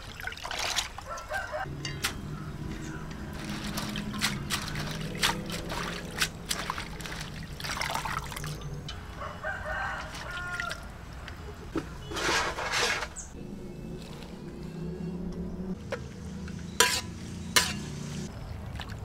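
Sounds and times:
water sloshing in metal basin: 0.0s - 9.1s, 9.9s - 13.2s
rooster crowing: 1.0s - 1.8s, 9.0s - 11.0s.

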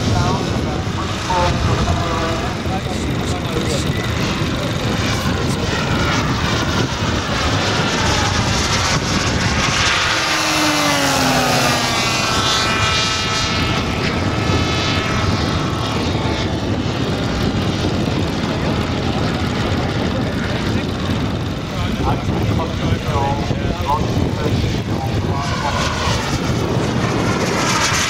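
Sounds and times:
model plane engines running: 0.0s - 28.0s
model plane passing by: 0.0s - 28.0s.

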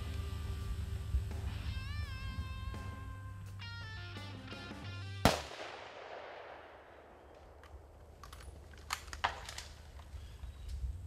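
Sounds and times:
plucked guitar music: 1.5s - 5.3s
rifle shot echoing: 5.2s - 8.0s.

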